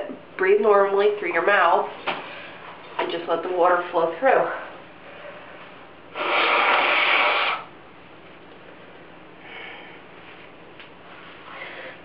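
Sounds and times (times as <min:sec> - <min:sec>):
person blowing out through nose: 0:06.1 - 0:07.7.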